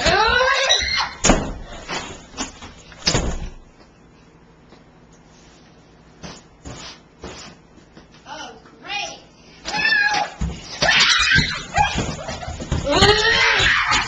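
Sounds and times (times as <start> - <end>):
child squealing: 0.0 - 1.2, 12.8 - 14.0.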